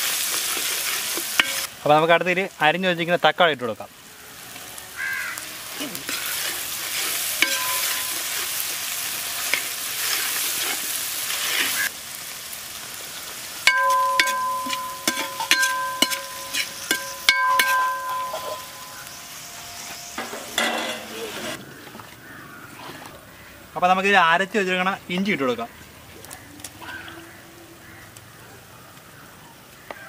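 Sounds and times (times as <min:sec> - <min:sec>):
vegetables sizzling in oil: 0:00.0 - 0:21.6
spoon knocking a ringing pan: 0:07.4 - 0:08.4, 0:13.7 - 0:19.3, 0:20.2 - 0:21.1.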